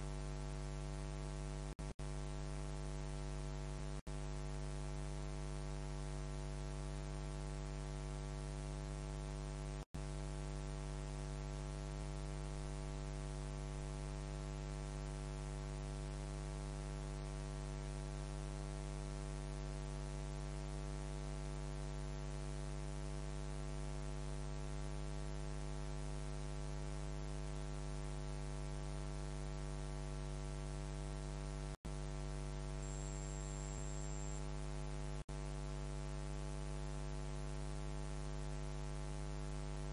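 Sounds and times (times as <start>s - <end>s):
electrical mains hum with hiss: 31.2s - 37.0s.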